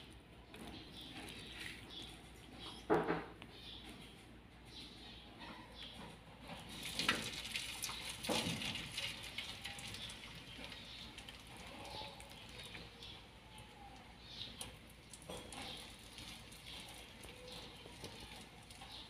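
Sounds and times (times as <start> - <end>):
batter frying in hot oil: 6.7 - 12.6
oil popping: 6.7 - 13.0.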